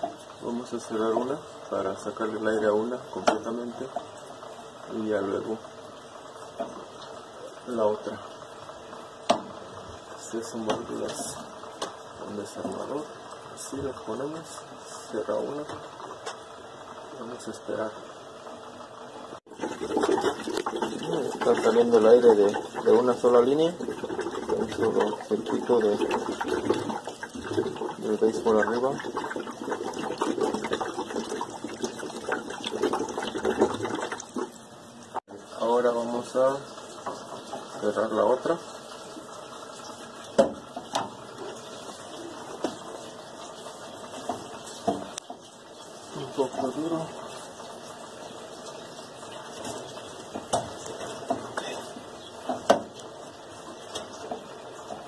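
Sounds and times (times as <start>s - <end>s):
hose bubbling into water bucket: 19.5s - 35.2s.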